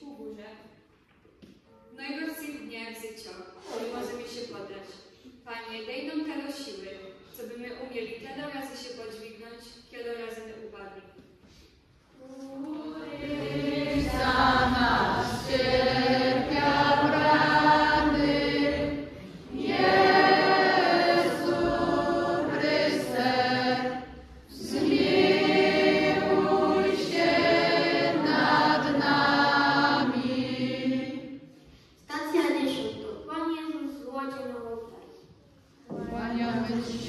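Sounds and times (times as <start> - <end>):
young choir singing: 12.2 - 31.5, 35.9 - 37.0.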